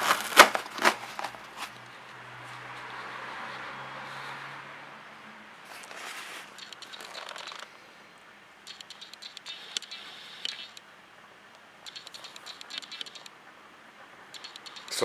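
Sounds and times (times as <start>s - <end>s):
small plastic clicks and rattles: 6.5s - 7.7s, 8.7s - 10.8s, 11.8s - 13.3s, 14.3s - 15.0s.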